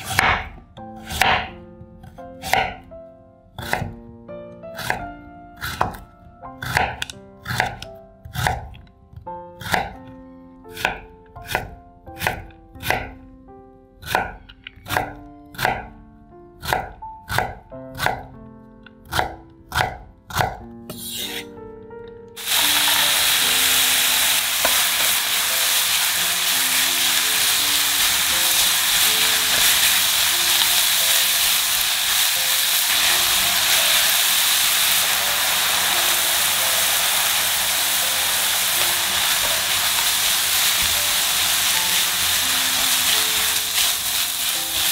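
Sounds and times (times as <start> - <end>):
knife chopping on wooden board: 0.0 - 1.6, 2.4 - 2.8, 3.6 - 4.0, 4.8 - 8.8, 9.6 - 10.1, 10.7 - 13.2, 14.0 - 15.9, 16.6 - 18.4, 19.0 - 21.5
food sizzling in a pan: 22.4 - 44.9.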